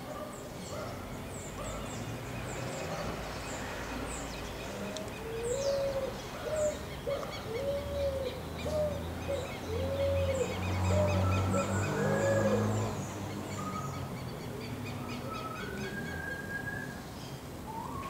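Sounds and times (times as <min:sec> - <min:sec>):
small birds chirping: 0:00.0 - 0:18.0
pigeon cooing: 0:05.2 - 0:12.9.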